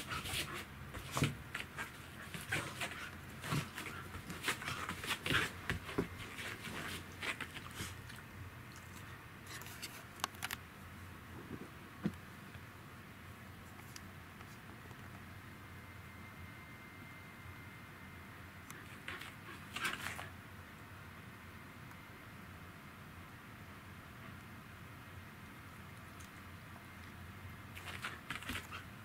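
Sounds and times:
paws scuffling and scratching: 0.0 - 10.1, 18.8 - 20.3, 27.7 - 29.0.

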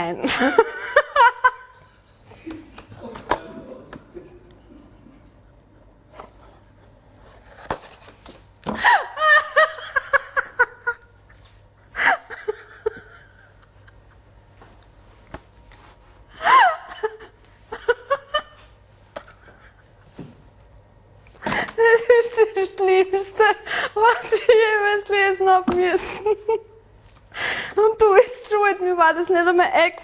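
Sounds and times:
woman laughing: 0.2 - 1.8, 8.8 - 11.3, 11.9 - 14.3, 16.4 - 20.2, 21.5 - 25.2, 25.9 - 26.8.

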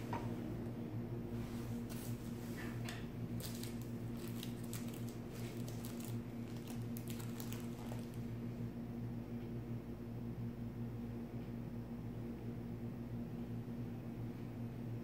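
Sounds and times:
faint clicks and rustles: 1.6 - 8.4.

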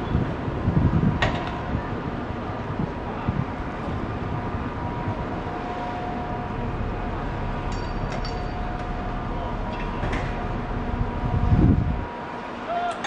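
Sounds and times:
faint steady whine: 0.0 - 13.0
ship engine rumble: 0.0 - 13.0.

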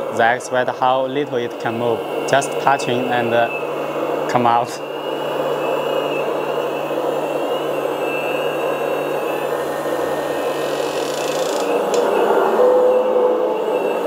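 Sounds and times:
higher tone: 4.7 - 14.0
hydraulic pump whirring: 6.4 - 12.6.

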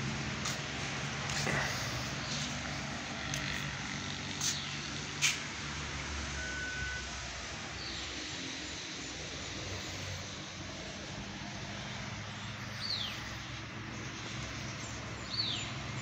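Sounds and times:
vehicle engine running: 0.0 - 6.4.

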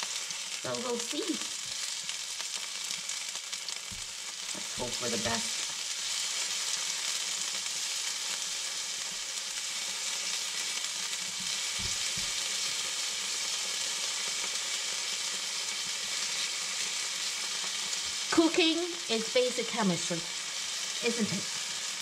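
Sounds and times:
mushrooms sizzling in frying pan: 0.0 - 22.0.

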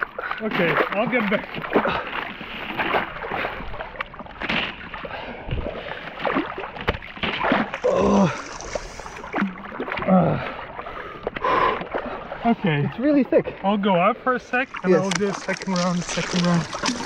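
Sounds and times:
hands splashing in water: 14.6 - 17.0
thin ice cracking: 14.8 - 17.0.

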